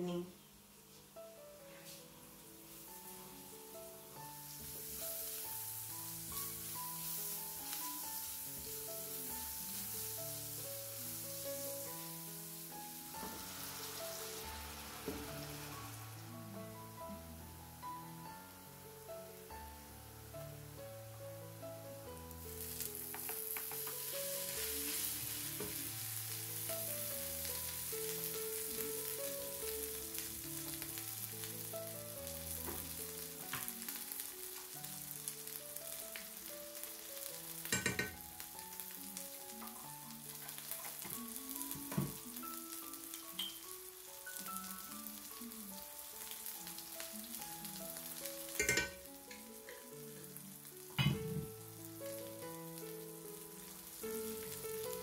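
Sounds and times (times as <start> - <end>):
food sizzling in a skillet: 0.0 - 55.0
soft background music: 0.0 - 55.0
utensil knocking against pan: 23.1 - 24.0.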